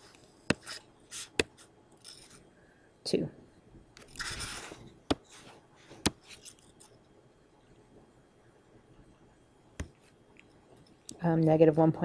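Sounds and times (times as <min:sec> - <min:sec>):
faint stylus scratching: 0:00.0 - 0:02.4, 0:04.0 - 0:07.0.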